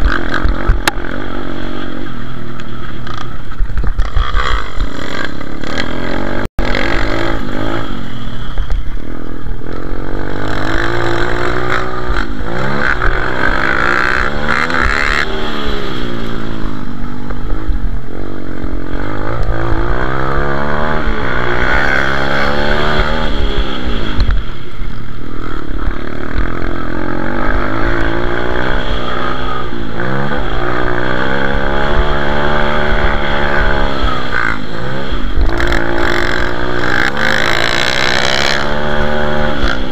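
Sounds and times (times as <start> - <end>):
pit bike engine revving: 4.0 - 24.7, 25.3 - 39.9.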